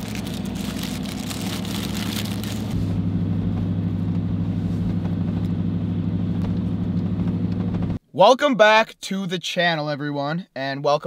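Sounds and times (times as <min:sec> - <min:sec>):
paper wrapper crinkling: 0:00.0 - 0:02.8.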